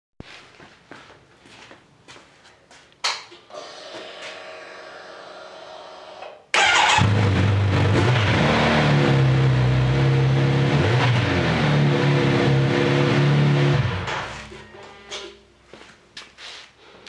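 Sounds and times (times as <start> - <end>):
starter motor cranking: 6.6 - 7.5.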